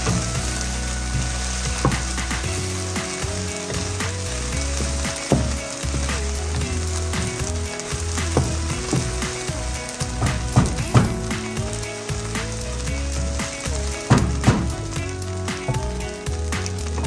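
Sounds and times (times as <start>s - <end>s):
wooden spatula scraping: 0.0s - 11.3s
rice sizzling in a hot pan: 0.0s - 17.0s
soft background tune: 0.0s - 17.0s.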